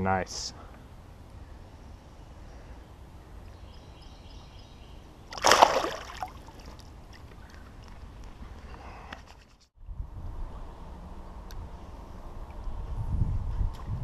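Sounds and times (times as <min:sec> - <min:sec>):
splash in river water: 0:05.3 - 0:06.8.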